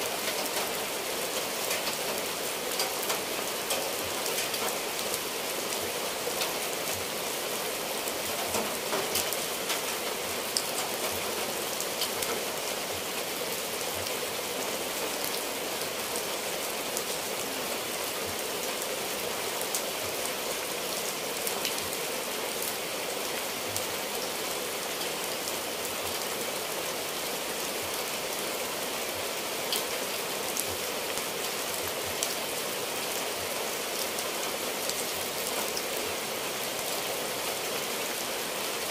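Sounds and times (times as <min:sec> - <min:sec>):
rain on tile roofs and trees: 0:00.0 - 0:38.9
raindrops ticking: 0:00.2 - 0:05.2, 0:08.3 - 0:13.0.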